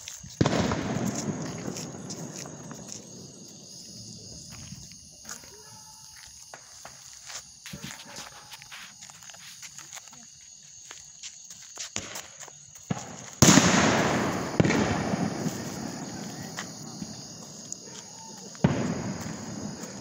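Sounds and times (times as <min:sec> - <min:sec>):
fireworks hissing and crackling: 0:00.0 - 0:05.1, 0:06.3 - 0:10.2, 0:11.7 - 0:20.0
sharp firework crack: 0:00.4 - 0:03.5, 0:12.9 - 0:17.2, 0:18.6 - 0:20.0.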